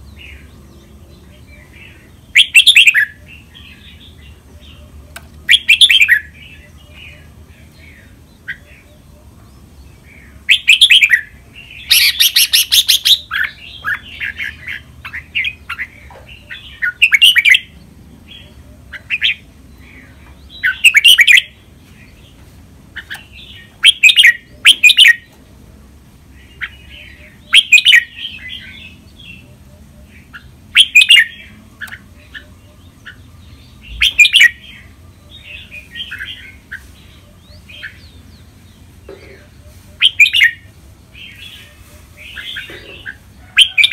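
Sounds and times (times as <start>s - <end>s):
bird warbling song: 0.0s - 25.4s, 26.3s - 43.9s
bird harsh rasping call: 10.5s - 17.7s, 39.1s - 43.9s.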